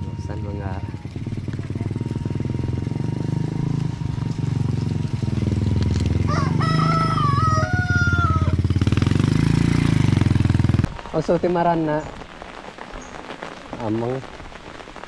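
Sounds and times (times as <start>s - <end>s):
motorcycle engine passing: 0.0s - 11.0s
rooster crowing: 6.2s - 8.6s.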